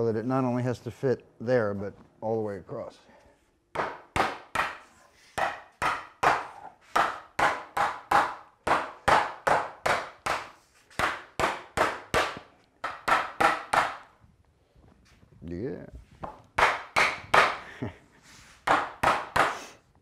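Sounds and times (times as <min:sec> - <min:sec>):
hammer knocking on wood: 0:03.7 - 0:04.8, 0:05.4 - 0:14.0.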